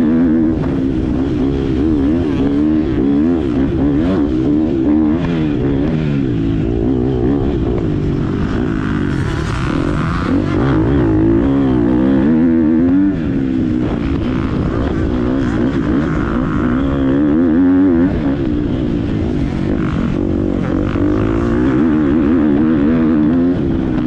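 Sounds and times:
motocross bike engine revving: 0.0 - 24.0.

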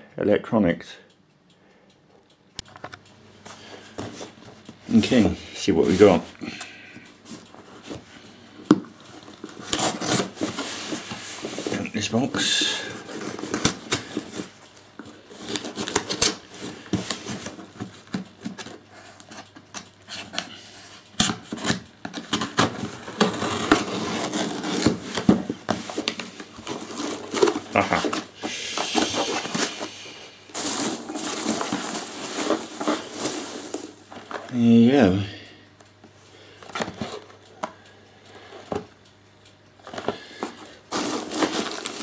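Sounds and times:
hands rustling packing peanuts: 9.4 - 17.9, 22.3 - 34.6, 40.0 - 42.0
knife scraping packing tape: 9.5 - 11.0, 21.2 - 33.8
tape peeling off cardboard: 21.2 - 28.0.

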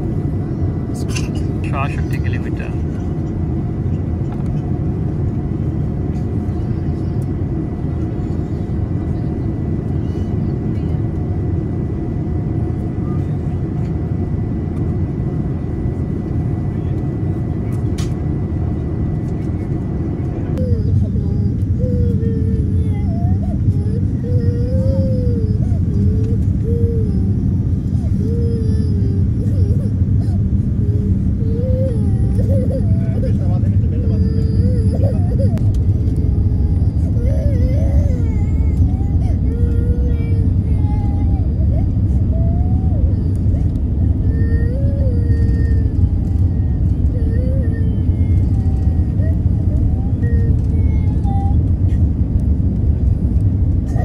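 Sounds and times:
airplane cabin engine roar: 0.0 - 54.0
child's high voice: 20.6 - 27.4, 44.6 - 51.7.

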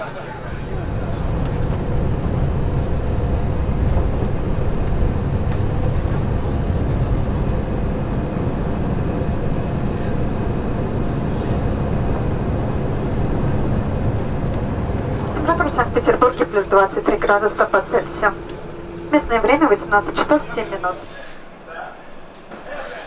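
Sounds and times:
jet airliner cabin drone: 0.0 - 23.0
faint steady tones: 13.8 - 22.4.

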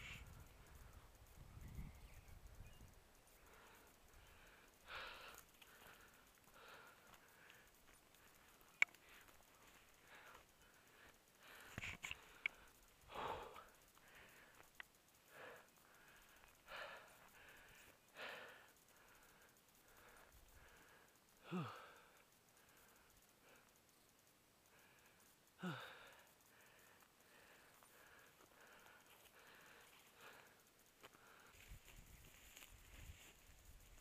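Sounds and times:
person breathing hard: 3.3 - 23.8, 24.6 - 33.4
small clicks: 5.3 - 10.5, 11.2 - 12.8, 13.7 - 15.0.

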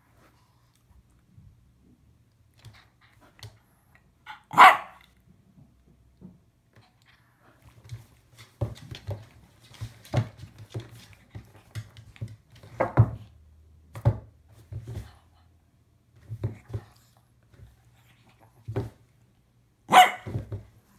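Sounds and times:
dog thumping on wooden floor: 7.8 - 15.2, 16.2 - 17.8, 20.0 - 20.9.

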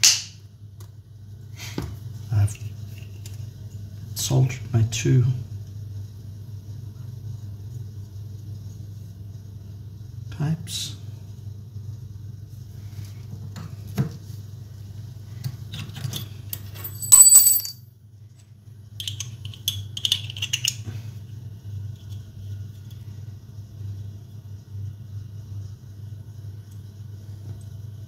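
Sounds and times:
steady low hum: 0.4 - 15.4, 20.8 - 28.0
ringing metallic clink: 16.8 - 17.8.

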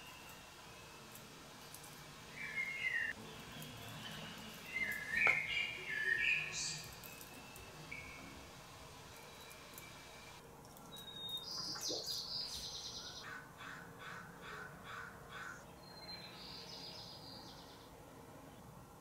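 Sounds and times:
harsh caw-like bird calls: 13.1 - 15.7.

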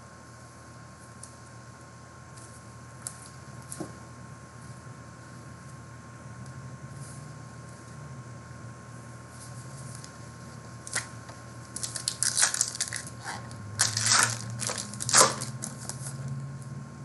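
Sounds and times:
foil wrapper crinkling: 11.7 - 13.2, 13.8 - 16.2.

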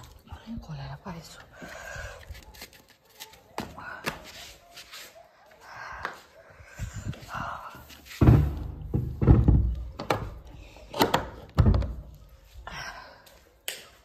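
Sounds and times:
heavy thuds and knocks: 8.2 - 10.2.

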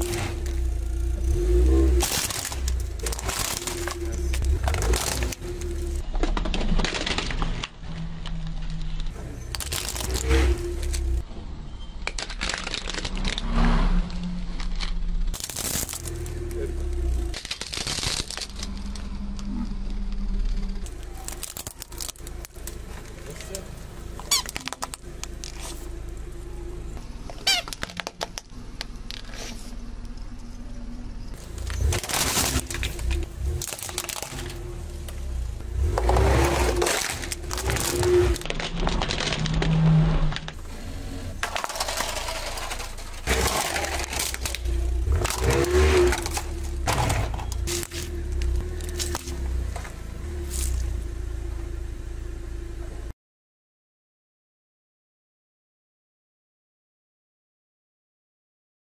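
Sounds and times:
plastic toys cracking under tyre: 0.0 - 11.2, 12.0 - 13.5, 14.6 - 20.2, 20.8 - 26.2, 27.2 - 29.4, 31.4 - 51.0
low hum: 0.0 - 53.1.

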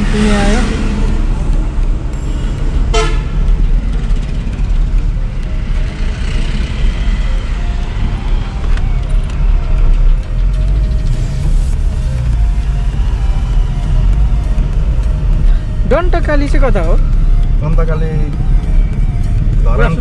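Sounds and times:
vehicle road rumble: 0.0 - 20.0.

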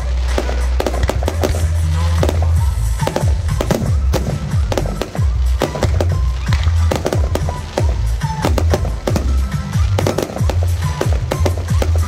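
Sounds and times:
fireworks bursting: 0.0 - 12.0
music with steady bass: 0.0 - 12.0.

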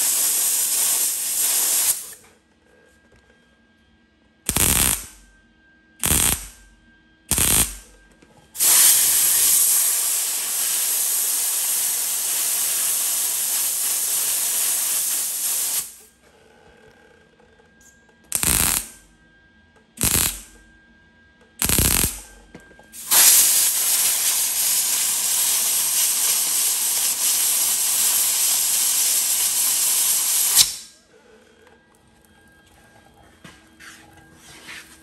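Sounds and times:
air blow gun hissing: 0.0 - 2.2, 4.5 - 5.2, 6.0 - 6.6, 7.3 - 7.8, 8.6 - 16.0, 18.3 - 19.0, 20.0 - 20.5, 21.6 - 22.2, 23.0 - 30.9
crackling welding bursts: 0.0 - 2.2, 4.5 - 5.2, 6.0 - 6.6, 7.3 - 7.9, 8.6 - 16.0, 18.3 - 19.0, 20.0 - 20.6, 21.6 - 22.3, 23.0 - 30.9.

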